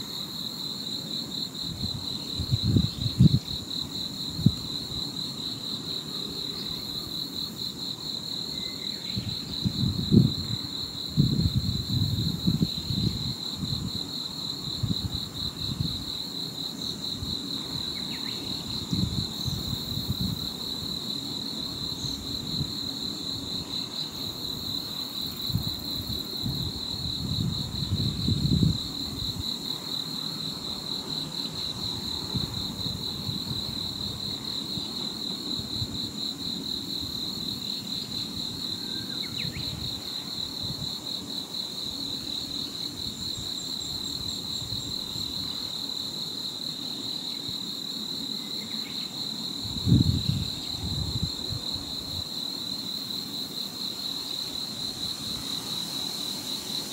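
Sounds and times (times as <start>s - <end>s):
wind rumbling on microphone: 1.6s - 5.0s, 9.1s - 16.2s, 17.1s - 21.0s, 25.3s - 29.6s, 31.7s - 34.9s, 49.6s - 52.2s.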